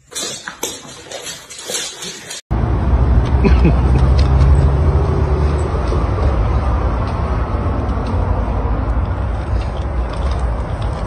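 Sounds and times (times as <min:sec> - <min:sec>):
toy stroller wheels rolling on stone: 0:00.0 - 0:02.4.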